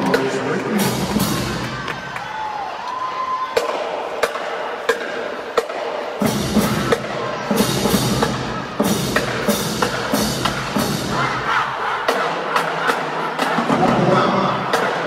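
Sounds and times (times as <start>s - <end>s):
bass drums: 0.0s - 2.1s
marching drumline: 0.0s - 15.0s.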